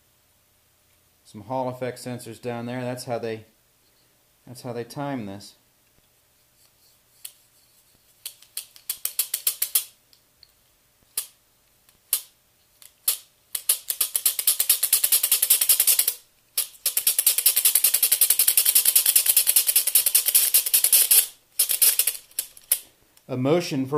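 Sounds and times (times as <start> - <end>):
plastic gears clicking: 8.2 - 9.9, 12.1 - 22.8.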